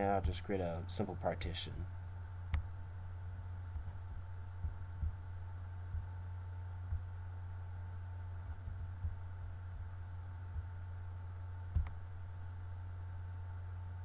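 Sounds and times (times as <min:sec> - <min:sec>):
soft low thumps: 0:00.0 - 0:00.5, 0:02.4 - 0:12.9
low electrical hum: 0:00.0 - 0:14.0.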